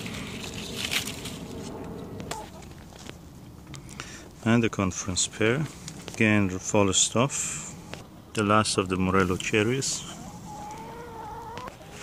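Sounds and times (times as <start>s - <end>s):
faint outdoor hiss: 2.6s - 12.0s.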